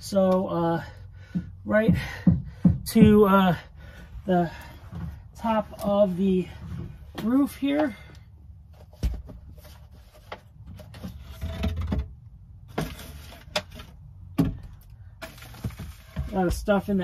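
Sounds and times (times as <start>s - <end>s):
knocks on wooden rafters: 1.2s - 3.6s, 14.3s - 14.8s
scraping and rustling: 8.7s - 14.1s, 15.2s - 17.0s.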